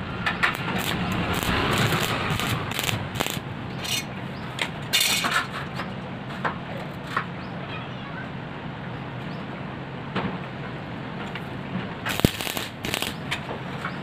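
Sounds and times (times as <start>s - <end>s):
welding arc crackling: 0.0s - 3.5s, 12.1s - 13.4s
steady low hum: 0.0s - 4.5s, 11.9s - 13.8s.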